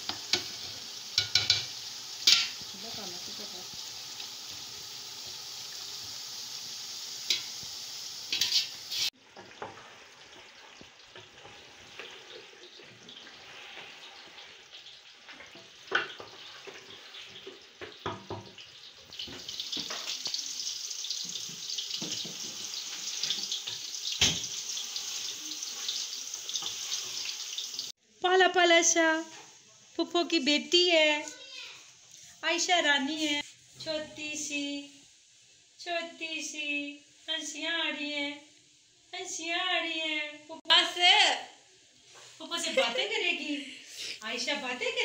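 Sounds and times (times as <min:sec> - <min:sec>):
chicken sizzling in a pot: 0:00.0 - 0:28.2, 0:28.9 - 0:45.0
spoon knocking against pot: 0:01.2 - 0:02.6.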